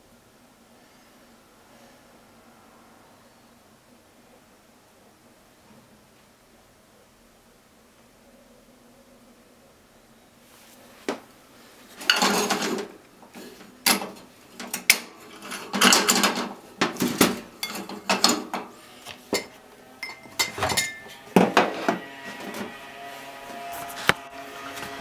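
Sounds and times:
dishes and utensils clattering: 12.0s - 22.8s.

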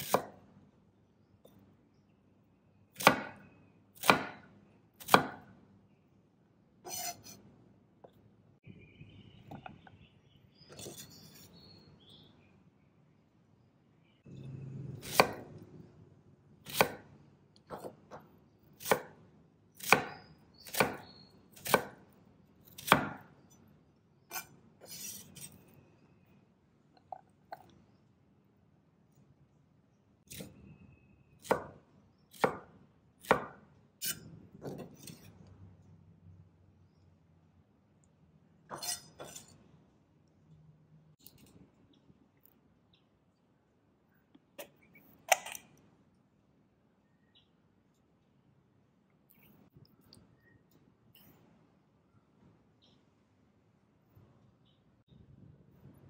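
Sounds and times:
knife chopping on wooden board: 0.0s - 0.4s, 3.0s - 3.4s, 4.0s - 5.5s, 15.0s - 15.5s, 16.7s - 17.1s, 17.7s - 19.2s, 19.8s - 22.0s, 22.7s - 23.3s, 31.4s - 35.2s.

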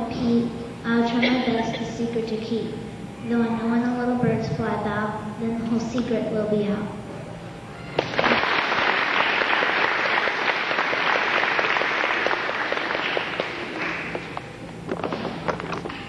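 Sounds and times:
audience applauding: 8.0s - 14.4s.

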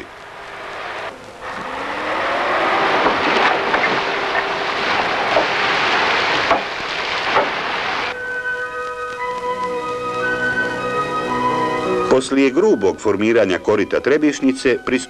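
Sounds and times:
machine engine droning: 0.0s - 8.1s
music: 8.1s - 15.0s.

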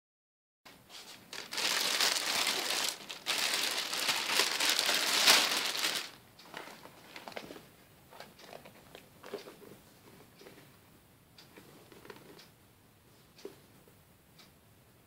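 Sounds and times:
plastic bag crinkling: 1.0s - 7.6s.

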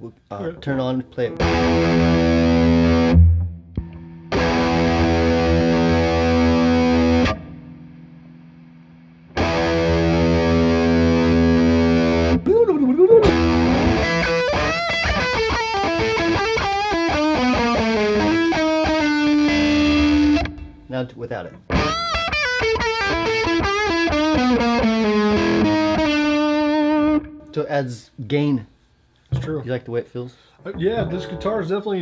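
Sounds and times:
distorted electric guitar: 1.3s - 12.5s, 13.2s - 20.9s, 21.6s - 27.5s.

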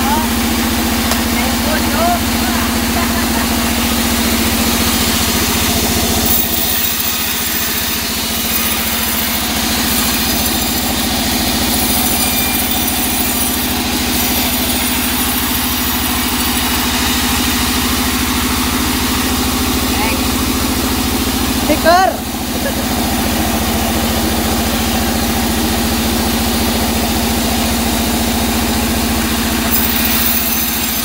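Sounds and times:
band sawmill humming: 0.0s - 31.0s.

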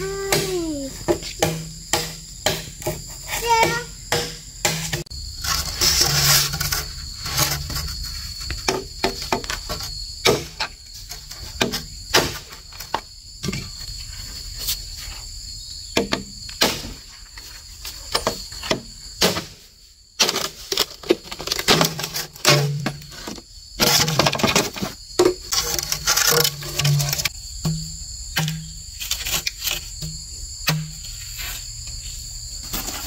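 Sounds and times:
high insect drone: 0.0s - 33.0s
bamboo poles knocking: 0.2s - 5.1s, 20.2s - 28.8s, 30.0s - 31.0s.

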